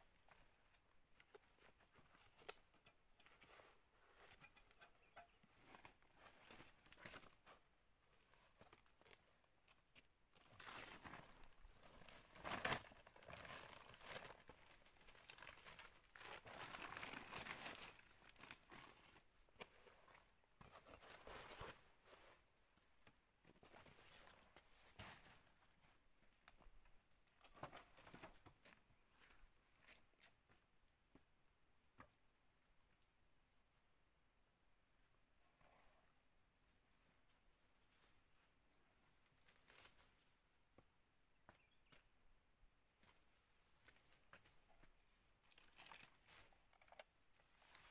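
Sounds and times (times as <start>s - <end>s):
insect chirring: 0.0s - 23.4s, 24.0s - 47.9s
leaves and twigs rustling: 8.2s - 22.5s, 39.4s - 40.2s, 43.8s - 47.9s.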